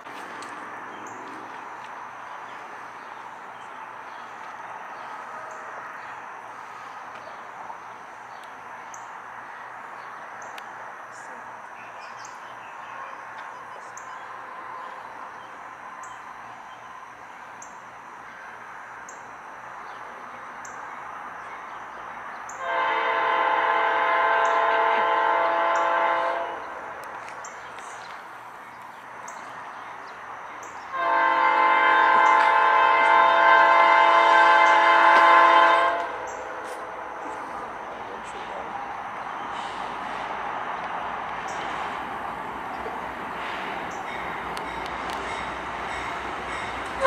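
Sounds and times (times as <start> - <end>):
train rumble: 0.0 - 47.0
locomotive air horn blasts: 22.6 - 26.8, 30.9 - 36.9.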